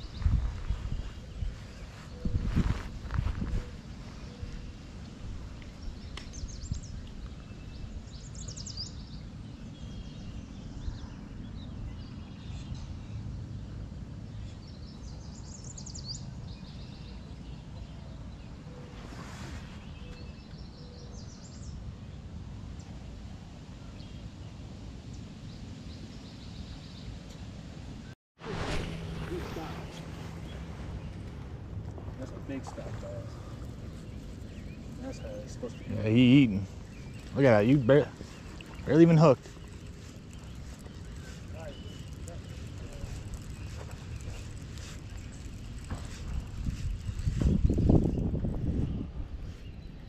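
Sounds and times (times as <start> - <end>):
birds singing: 0.0 - 21.9, 29.6 - 50.0
low outdoor rumble: 27.4 - 50.0.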